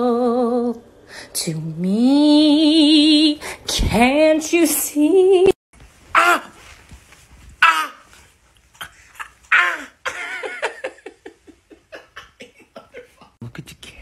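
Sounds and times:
person laughing: 8.8s - 13.4s.

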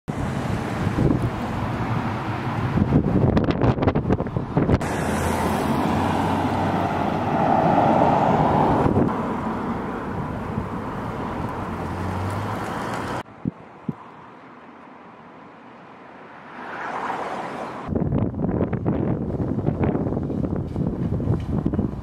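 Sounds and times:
traffic rumble: 0.1s - 22.0s
wind buffeting microphone: 0.2s - 4.9s, 6.0s - 9.3s, 17.9s - 22.0s.

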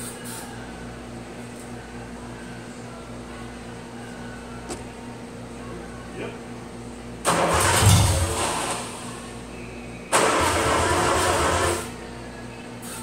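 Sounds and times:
engine cranked by starter: 7.2s - 9.2s, 10.1s - 11.9s.

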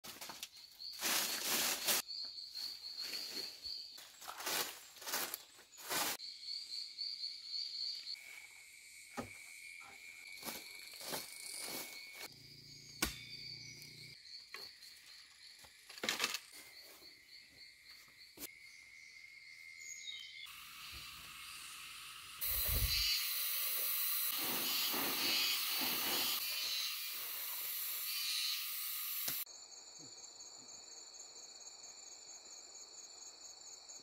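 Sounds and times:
insects trilling: 0.3s - 34.0s
broom sweeping: 1.0s - 2.1s, 4.2s - 6.2s, 24.3s - 26.6s
bamboo and debris knocking: 15.8s - 16.6s.

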